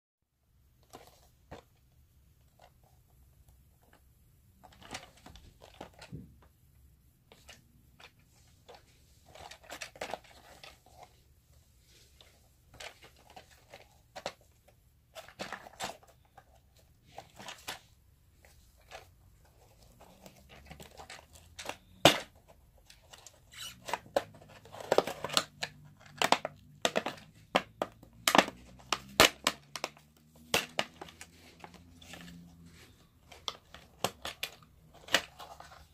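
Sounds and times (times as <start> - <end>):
cardboard box rustling and crinkling: 7.4 - 35.9.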